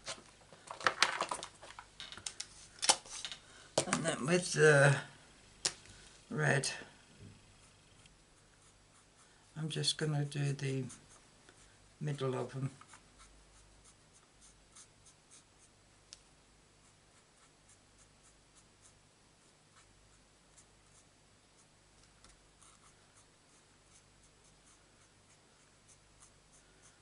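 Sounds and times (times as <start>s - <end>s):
marker scratching on cardstock: 22.6s - 27.0s.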